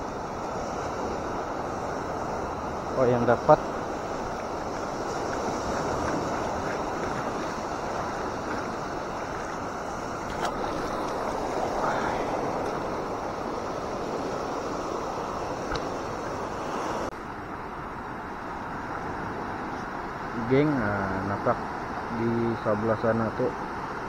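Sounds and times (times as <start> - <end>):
surf breaking on rocks: 2.4 - 17.1.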